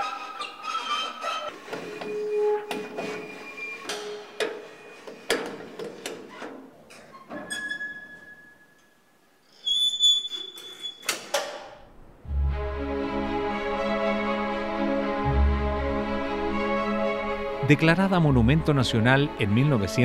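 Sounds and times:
drawn-out machinery squeaks: 0:00.0 - 0:05.0, 0:09.6 - 0:11.1
music with deep low note: 0:12.2 - 0:20.0.

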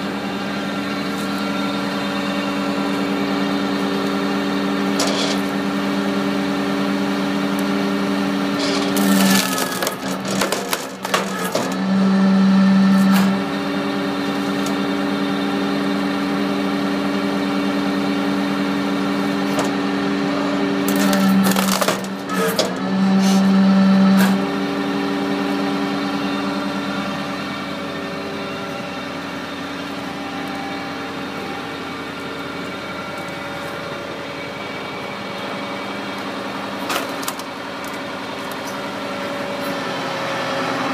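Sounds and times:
engine and hydraulic pump hum: 0:00.0 - 0:40.9
wood cracking and splintering: 0:08.6 - 0:11.6, 0:20.9 - 0:22.3.

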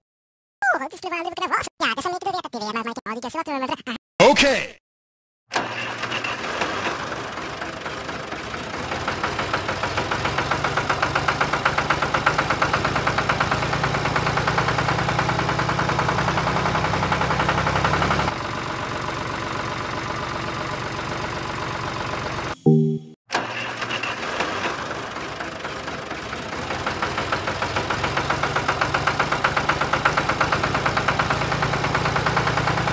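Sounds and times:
tractor engine knocking: 0:05.6 - 0:22.6, 0:24.2 - 0:32.9.

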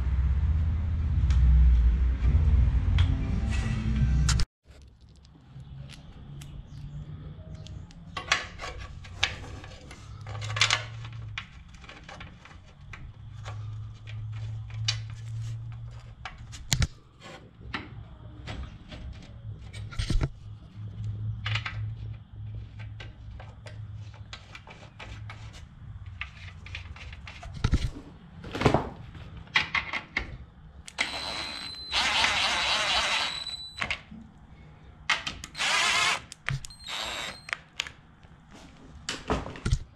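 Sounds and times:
cordless drill whining: 0:30.9 - 0:33.9, 0:35.5 - 0:37.6.

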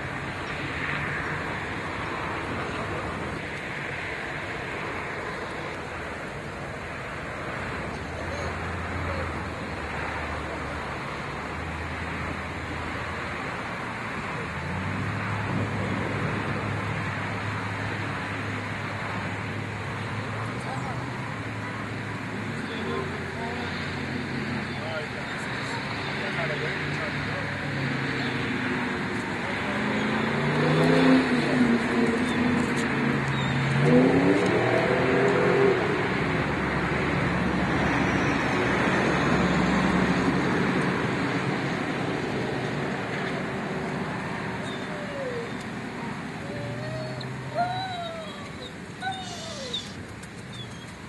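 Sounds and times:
rumbling background noise: 0:00.0 - 0:51.0
dog howling: 0:44.6 - 0:45.6, 0:46.4 - 0:50.0.

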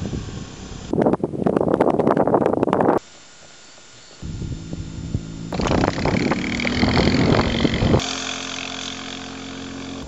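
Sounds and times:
wind noise on microphone: 0:00.0 - 0:03.1, 0:04.2 - 0:08.2
motorcycle engine running: 0:04.2 - 0:10.0.

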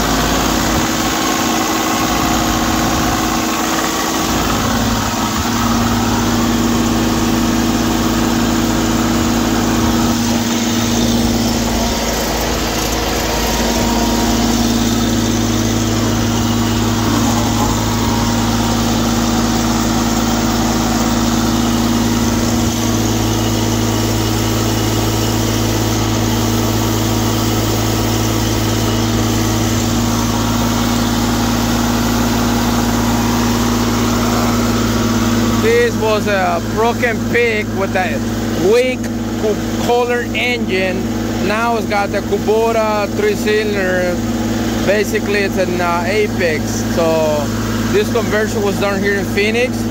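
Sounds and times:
engine humming steadily: 0:00.0 - 0:49.9.

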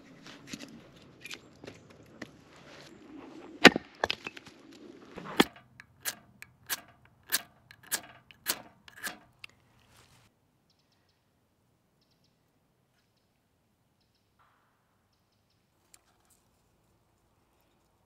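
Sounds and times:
hatchet chopping wood: 0:05.3 - 0:09.2.

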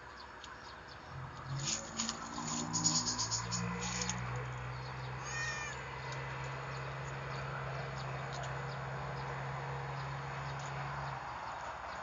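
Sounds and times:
cat meowing: 0:05.2 - 0:05.8.

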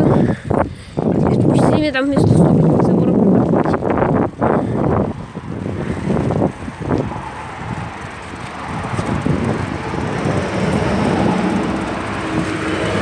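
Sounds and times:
heavy truck driving past: 0:07.2 - 0:13.0.

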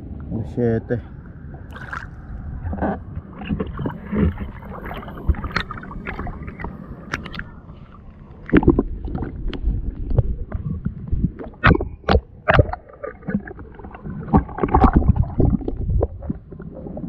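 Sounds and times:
muffled underwater churning: 0:01.0 - 0:17.0.

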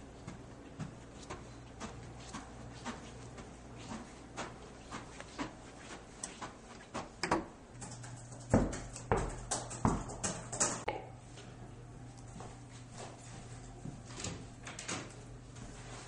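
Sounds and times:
footsteps walking: 0:00.0 - 0:07.2, 0:12.1 - 0:14.6, 0:15.4 - 0:16.0.

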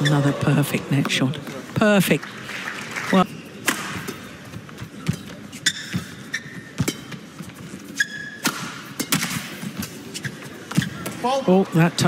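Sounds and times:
shoes squeaking on court floor: 0:00.0 - 0:01.8, 0:03.1 - 0:11.8
racket striking shuttlecock: 0:03.6 - 0:04.3, 0:08.4 - 0:10.0.

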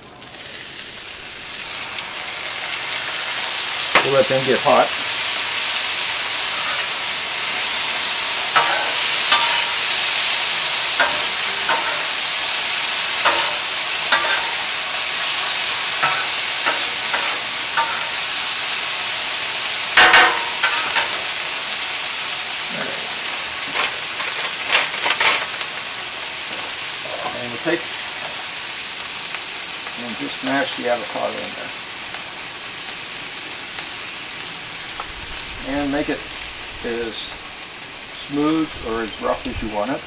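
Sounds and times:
beans sizzling on a griddle: 0:00.0 - 0:40.0
metal spatula scraping steel: 0:06.4 - 0:07.0, 0:08.5 - 0:10.3, 0:11.0 - 0:12.3, 0:13.2 - 0:14.7, 0:16.0 - 0:18.4.

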